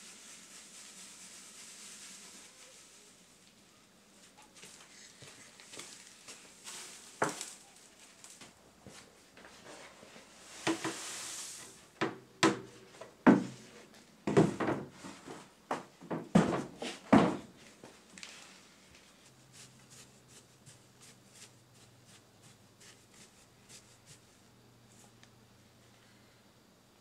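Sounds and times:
charcoal pouring hiss: 0.0 - 3.7, 4.6 - 8.5, 10.1 - 12.0
charcoal and scoop clattering: 5.4 - 8.5, 10.4 - 11.8.

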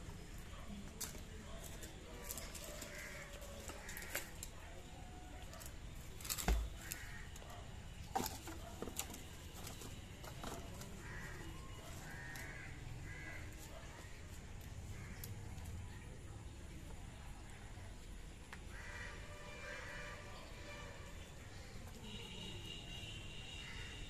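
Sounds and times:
crows cawing: 2.7 - 4.4, 6.7 - 7.4, 11.0 - 13.6, 14.9 - 15.4, 18.7 - 20.2, 23.5 - 24.0.

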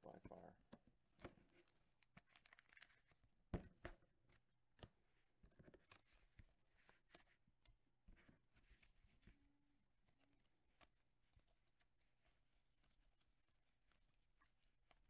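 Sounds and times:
cards and plastic sleeves rustling: 1.2 - 3.4, 4.2 - 7.3.

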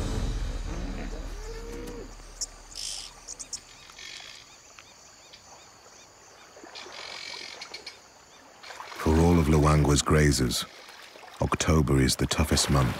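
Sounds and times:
insect calls: 0.6 - 12.9
bird chirps: 0.7 - 6.1.

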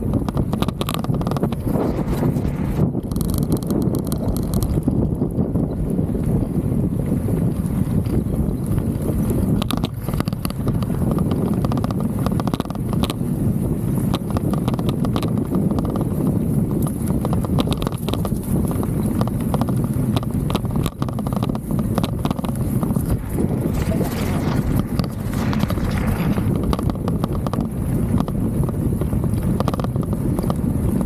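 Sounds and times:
bike tyre noise on dirt: 0.0 - 31.0
wind noise: 0.0 - 31.0
camera rattling in mount: 0.2 - 5.0, 9.4 - 13.2, 14.1 - 16.1, 16.8 - 18.5, 19.1 - 28.4, 29.5 - 30.6.

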